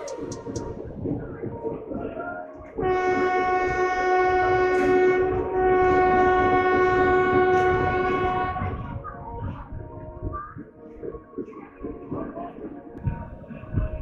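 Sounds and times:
train horn blast: 2.8 - 9.1.

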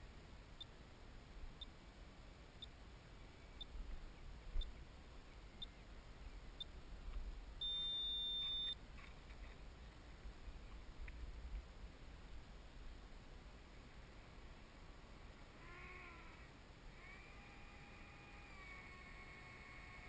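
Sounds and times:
faint electronic ticks: 0.6 - 0.8, 1.6 - 1.8, 2.6 - 2.8, 4.6 - 4.8, 5.6 - 5.8
high-pitched electronic beep: 7.6 - 8.8.

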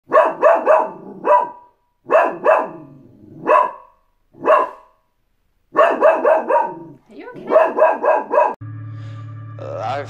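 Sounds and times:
small dog barking: 0.1 - 5.0, 5.7 - 8.6.

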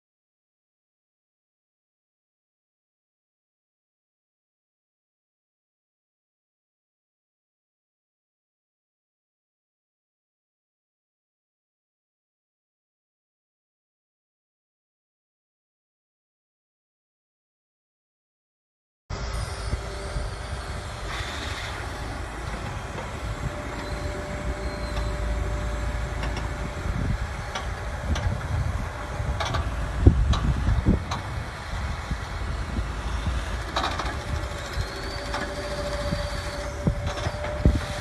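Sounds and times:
excavator diesel engine running: 19.1 - 38.0.

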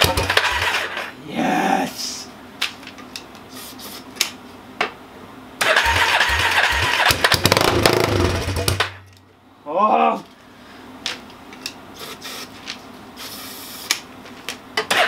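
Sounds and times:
engine cranking on starter: 0.0 - 1.1, 5.6 - 9.0.

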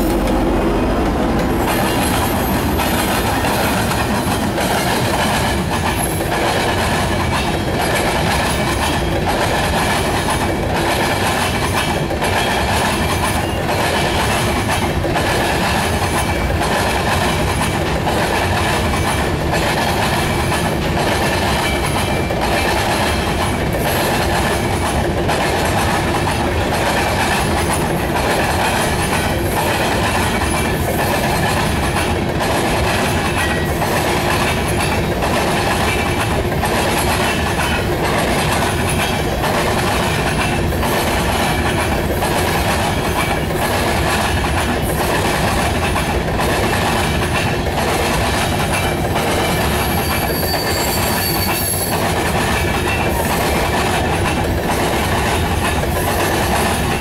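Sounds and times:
freight train rumbling past: 0.0 - 57.0
train wheels clacking over track: 0.0 - 57.0.

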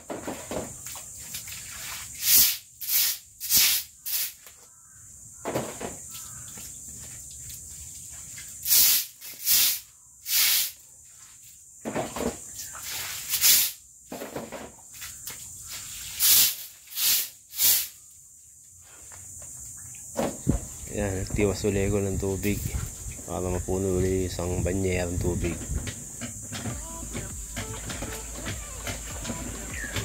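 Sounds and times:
broom sweeping wet concrete: 0.8 - 4.6, 7.0 - 11.6, 12.6 - 13.8, 14.9 - 17.9.

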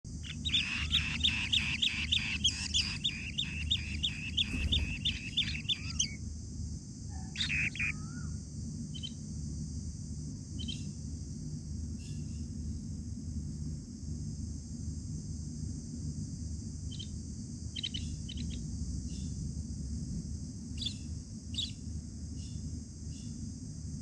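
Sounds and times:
nestlings chirping: 0.1 - 6.2, 7.2 - 8.3, 17.7 - 19.3.

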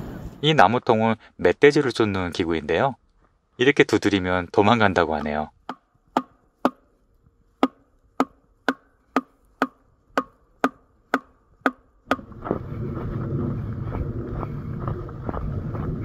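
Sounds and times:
hollow wooden log drum knocks: 5.2 - 6.8, 7.6 - 12.3
footsteps through snow: 12.2 - 16.0.

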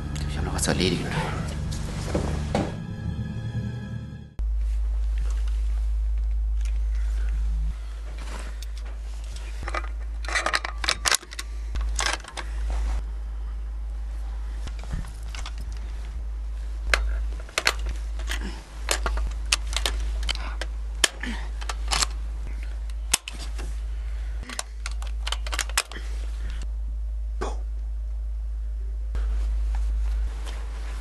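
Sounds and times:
steady low drone: 0.0 - 31.0
metallic rifle clicks and clacks: 9.6 - 12.5, 16.9 - 22.2, 22.8 - 23.6, 24.4 - 26.0.

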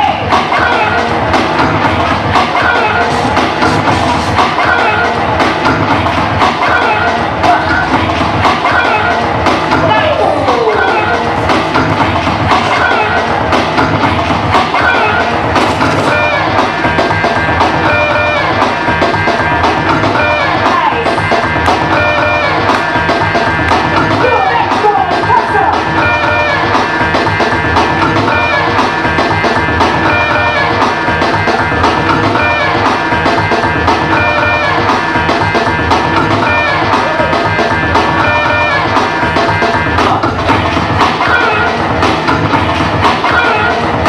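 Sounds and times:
loud dance music with drums: 0.0 - 44.0.

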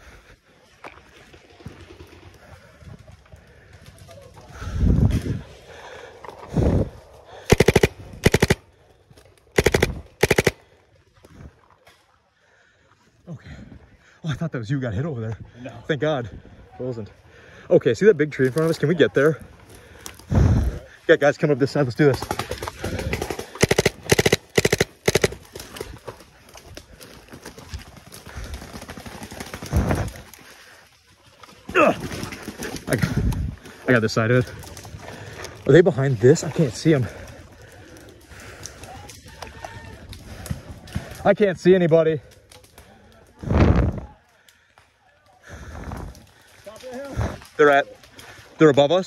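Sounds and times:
paintball markers firing: 7.5 - 8.6, 9.6 - 10.6, 22.2 - 25.8
footsteps running through undergrowth: 22.3 - 33.9.

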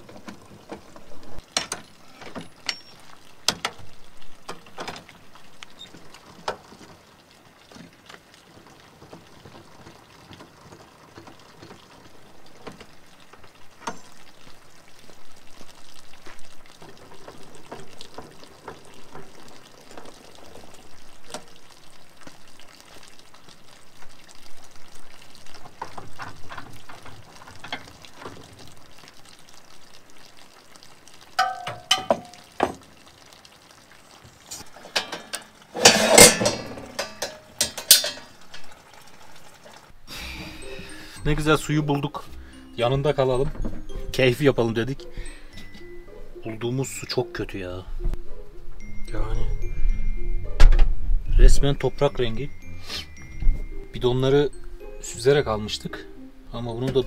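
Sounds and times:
handling clatter and knocks: 0.0 - 14.3, 16.3 - 21.6, 25.4 - 28.8, 31.4 - 33.0, 34.2 - 38.8, 43.1 - 44.7
water splashing and trickling: 0.0 - 57.0.

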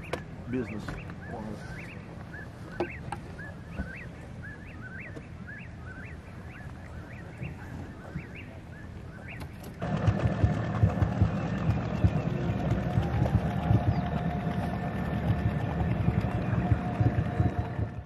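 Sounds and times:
bird chirping: 0.0 - 9.8, 11.4 - 18.0
loud low throbbing sound: 9.8 - 18.0
steady low hum: 9.8 - 18.0.

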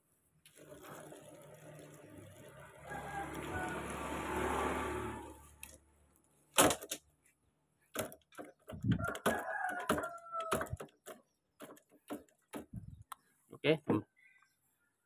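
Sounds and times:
rooster crowing: 2.6 - 5.4, 9.0 - 10.8.

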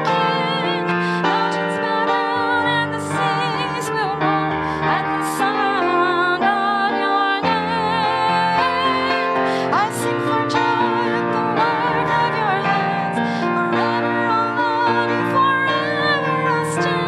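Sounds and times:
woman singing with vibrato: 0.0 - 17.0.

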